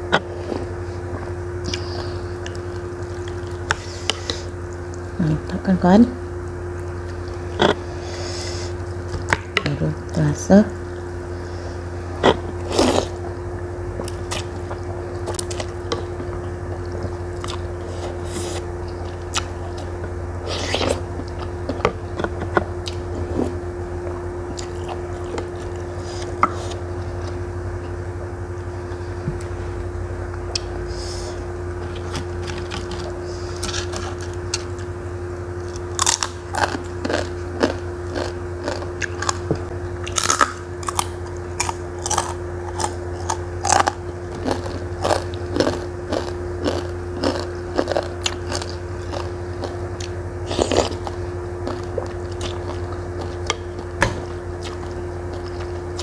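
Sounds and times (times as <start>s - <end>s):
steady low hum: 0.0s - 56.0s
crunching of crispy crackers: 35.6s - 53.5s.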